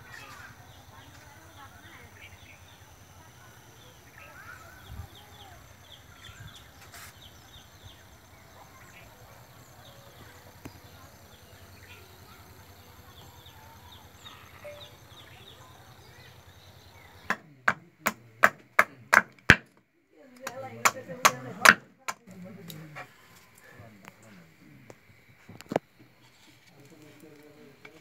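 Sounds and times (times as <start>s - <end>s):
small birds chirping: 0.0s - 18.4s.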